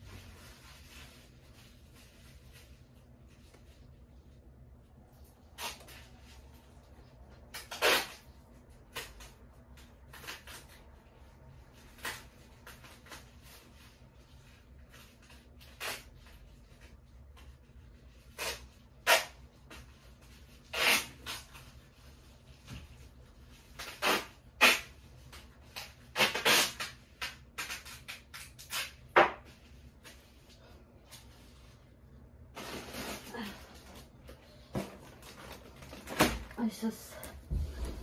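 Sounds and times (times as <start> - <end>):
bags and goods rustling: 30.0 - 38.0.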